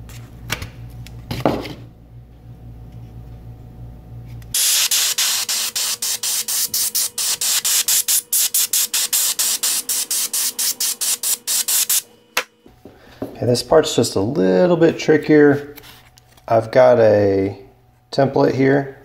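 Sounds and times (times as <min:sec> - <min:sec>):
airbrush hissing in short pulses: 0:04.6 - 0:12.0.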